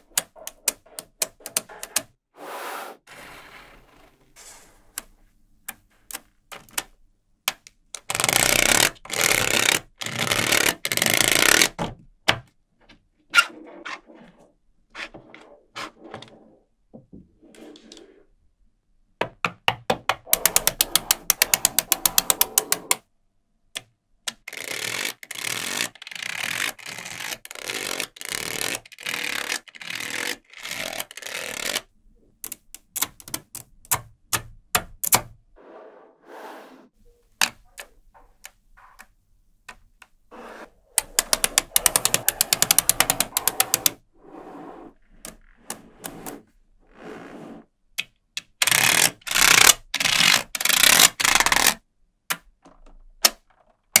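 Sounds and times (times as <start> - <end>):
magnetic balls clicking: 19.6 - 23.0, 32.4 - 35.2, 40.9 - 44.0.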